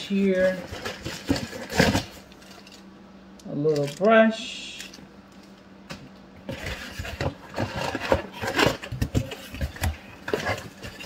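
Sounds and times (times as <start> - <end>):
cardboard packaging rustling: 0.1 - 2.8, 6.5 - 11.0.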